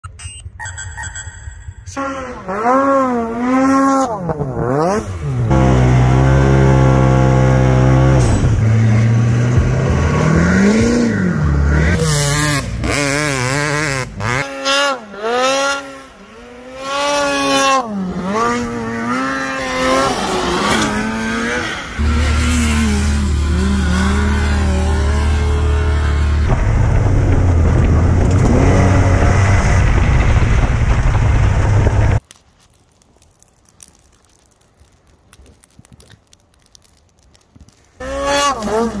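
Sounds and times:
dirt bike engine revving: 0:01.9 - 0:32.2, 0:38.0 - 0:39.0
snowmobile engine revving: 0:01.9 - 0:32.2, 0:38.0 - 0:39.0
utility vehicle engine revving: 0:01.9 - 0:32.2, 0:38.0 - 0:39.0.

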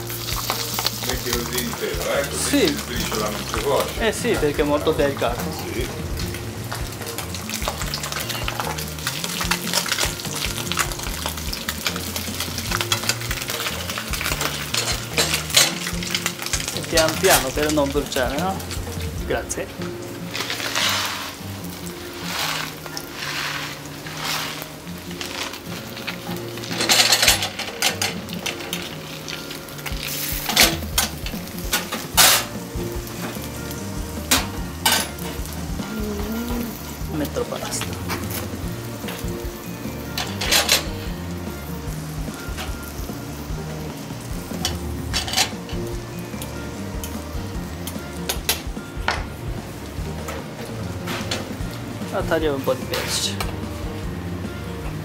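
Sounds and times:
fish sizzling in butter: 0:00.0 - 0:55.0
metal utensils clinking on pans: 0:00.1 - 0:05.9, 0:06.7 - 0:19.0, 0:20.3 - 0:21.4, 0:22.1 - 0:35.6, 0:40.1 - 0:41.2, 0:44.3 - 0:47.2, 0:47.8 - 0:49.3, 0:50.2 - 0:51.6, 0:52.5 - 0:53.6
utensil scraping a pan: 0:20.3 - 0:29.0.

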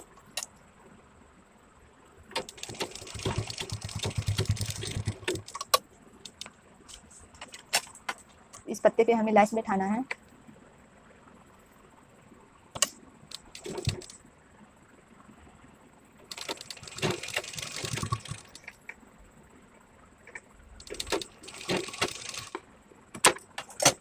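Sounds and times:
sewing machine stitching: 0:02.4 - 0:05.8, 0:13.3 - 0:14.1, 0:16.3 - 0:18.7, 0:20.8 - 0:22.6.

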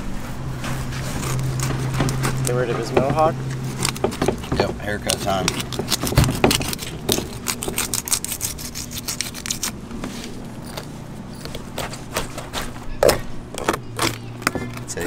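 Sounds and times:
low steady hum: 0:00.0 - 0:15.0
knife scraping fish: 0:00.9 - 0:02.6, 0:03.5 - 0:12.8.

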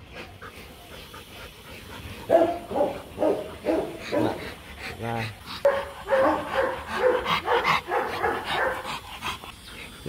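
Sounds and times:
dog barking: 0:02.3 - 0:04.4, 0:05.6 - 0:08.9.

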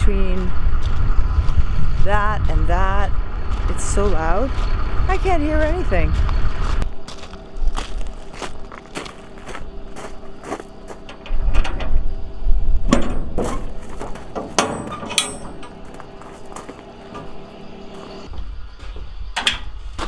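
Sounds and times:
footsteps crunching on gravel: 0:00.3 - 0:02.6, 0:03.4 - 0:11.2, 0:13.3 - 0:14.6, 0:15.5 - 0:19.1
container door latches clanking: 0:11.0 - 0:16.2, 0:19.4 - 0:19.8.

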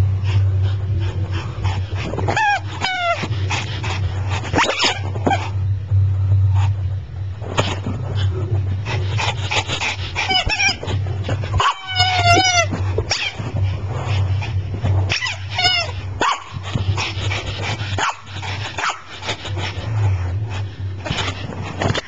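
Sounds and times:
dog whining and whimpering: 0:02.0 - 0:03.6, 0:09.2 - 0:13.6, 0:15.1 - 0:16.1.

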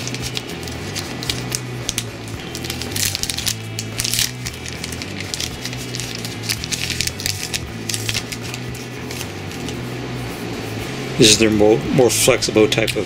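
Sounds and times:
plastic packaging crinkling: 0:00.0 - 0:09.8.

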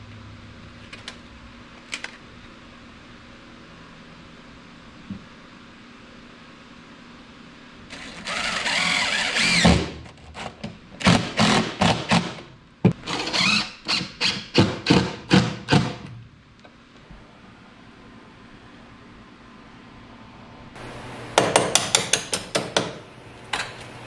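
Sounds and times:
cordless drill driving screws: 0:07.9 - 0:09.9, 0:11.0 - 0:12.4, 0:13.0 - 0:15.9.

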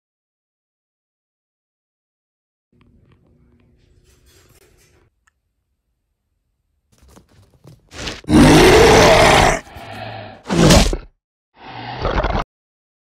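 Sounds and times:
monster growling roar: 0:08.0 - 0:12.4.

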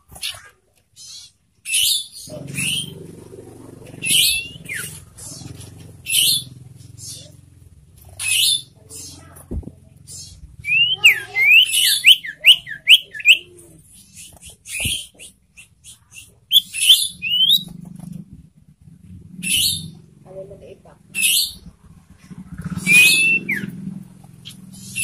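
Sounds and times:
bird rasping chatter: 0:00.2 - 0:07.4, 0:08.0 - 0:09.4, 0:10.0 - 0:18.1, 0:19.3 - 0:20.0, 0:21.1 - 0:25.0
sharp downslurred whistles: 0:01.7 - 0:03.0, 0:10.6 - 0:13.5, 0:14.2 - 0:17.7, 0:22.7 - 0:23.8.

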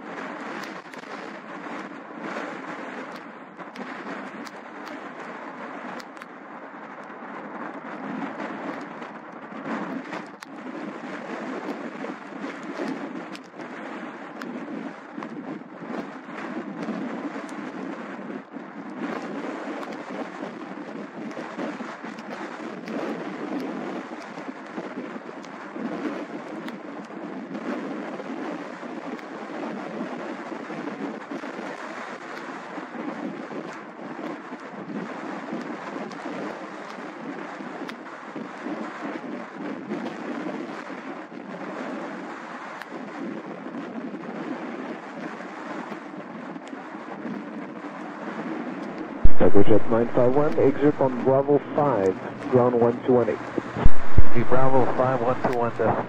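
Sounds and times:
wind buffeting microphone: 0:00.0 - 0:31.8, 0:42.9 - 0:56.0
jet engines rushing: 0:49.2 - 0:56.0
sharp clicks: 0:49.3 - 0:56.0.

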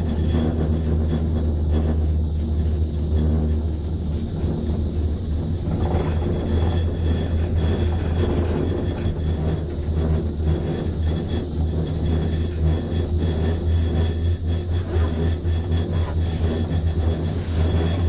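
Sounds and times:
gondola cabin rumble and hum: 0:00.0 - 0:18.0.

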